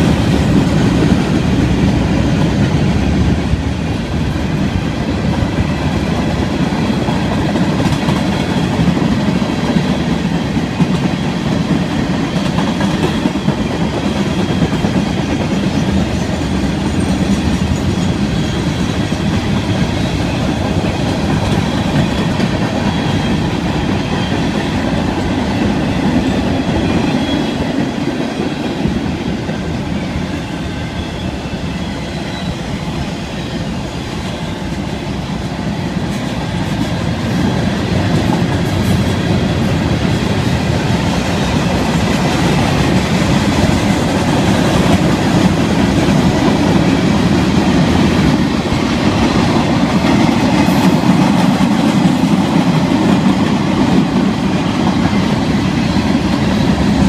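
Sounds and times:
steel wheels rolling on rail: 0.0s - 57.0s.

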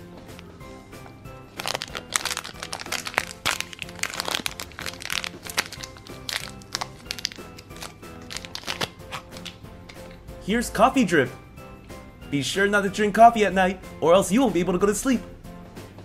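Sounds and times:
background music: 0.0s - 16.0s
plastic bag crinkling: 1.5s - 9.6s.

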